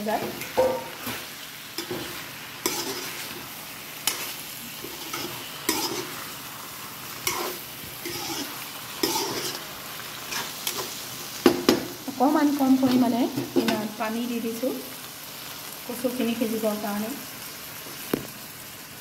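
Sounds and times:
food sizzling in oily pan: 0.0s - 19.0s
metal spatula scraping pan: 0.1s - 6.4s, 7.1s - 9.7s, 10.3s - 11.0s.

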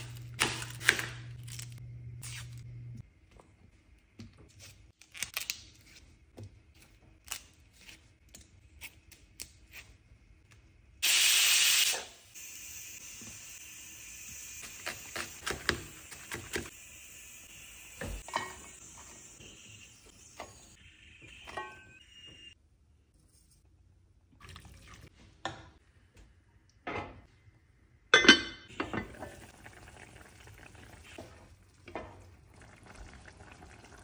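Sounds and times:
loud hiss: 11.0s - 15.2s.

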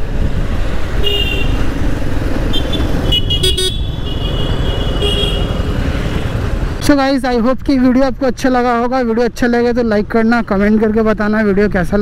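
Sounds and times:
vehicle horns honking: 1.0s - 1.6s, 2.5s - 5.6s.

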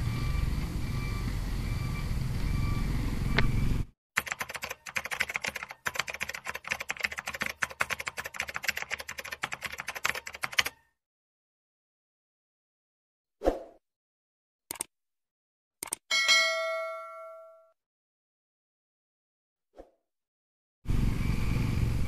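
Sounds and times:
steady sound with repeating beeps: 0.1s - 4.8s
fast uneven clicking: 4.2s - 10.7s.

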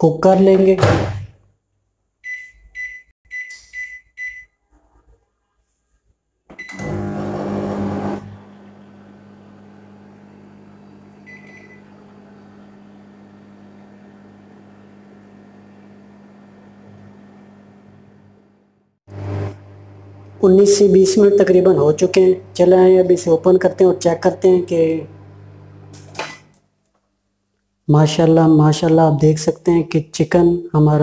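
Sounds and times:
microwave control panel beeping: 2.2s - 4.5s, 6.5s - 7.2s, 10.5s - 17.8s
microwave oven running hum: 6.6s - 26.5s.

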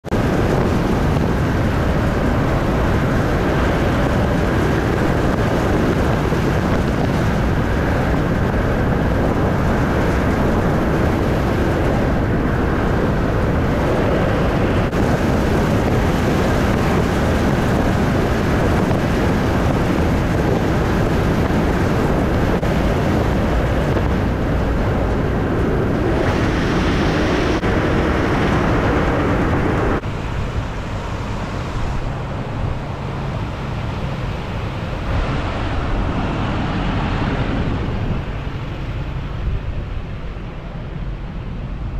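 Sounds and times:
car driving along a road: 0.0s - 41.9s.

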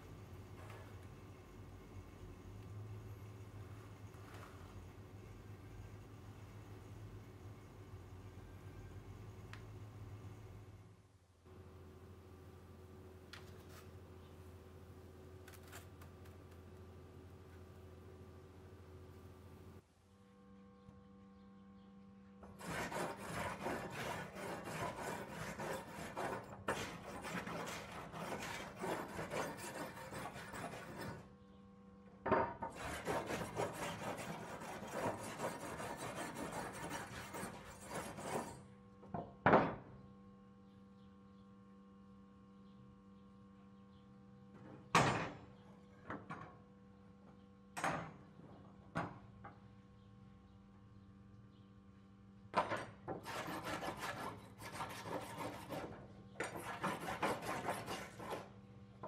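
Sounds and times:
steel scraper scraping rust: 22.6s - 31.3s, 32.7s - 38.6s, 53.2s - 58.5s.

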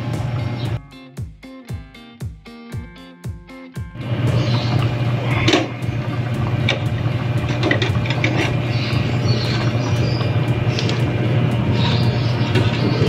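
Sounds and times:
low hum: 4.0s - 13.0s
soup boiling: 4.0s - 13.0s.

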